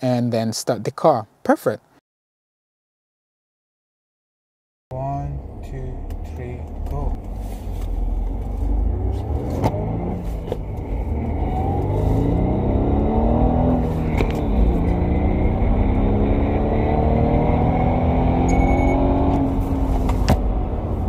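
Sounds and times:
car engine accelerating: 0:04.9 - 0:21.0.

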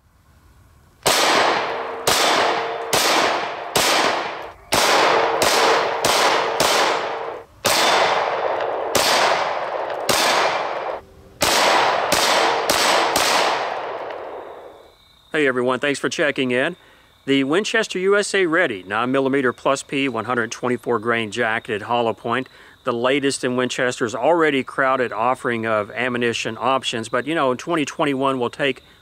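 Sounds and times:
pistol shots: 0:01.0 - 0:14.8
steel plate ringing: 0:01.4 - 0:08.2.

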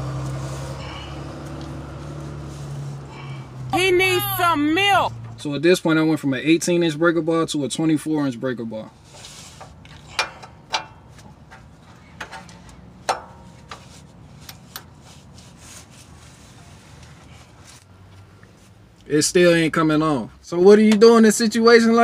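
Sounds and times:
sharp metal clicks and knocks: 0:09.8 - 0:13.8.

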